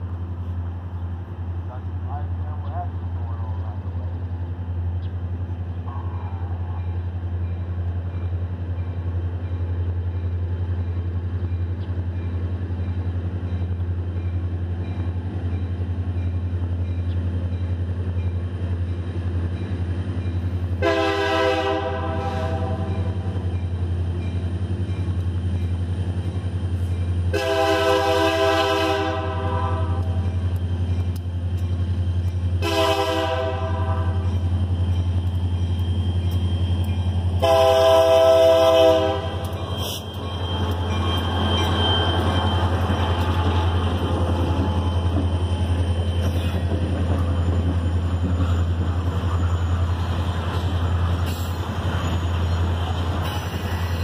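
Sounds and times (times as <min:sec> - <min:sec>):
railroad crossing bell ringing: 0:06.0 - 0:54.0
train horn blasts: 0:20.8 - 0:23.3, 0:27.3 - 0:30.3, 0:32.6 - 0:34.4, 0:37.4 - 0:39.9.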